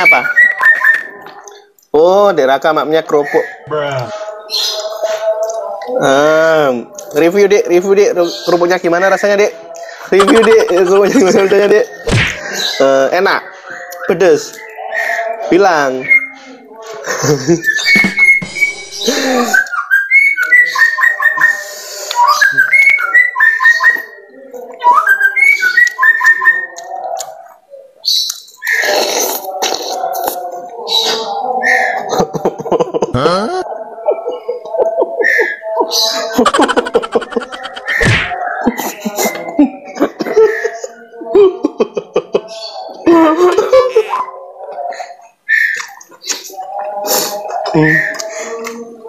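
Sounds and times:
bird singing whistled notes: 0.0s - 1.2s, 17.6s - 27.0s, 45.5s - 46.0s.

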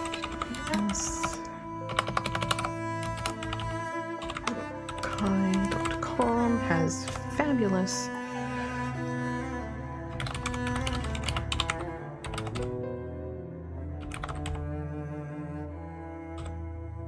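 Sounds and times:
keyboard typing clicks: 0.0s - 6.0s, 10.1s - 12.6s, 14.0s - 14.6s
cello music: 0.0s - 17.0s.

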